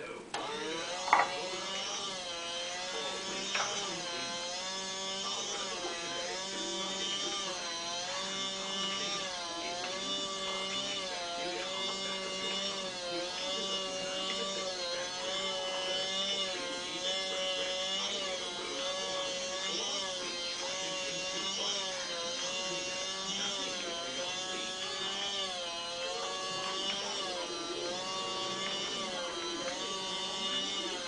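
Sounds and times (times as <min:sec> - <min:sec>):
small electric motor whirring: 0:00.0 - 0:31.0.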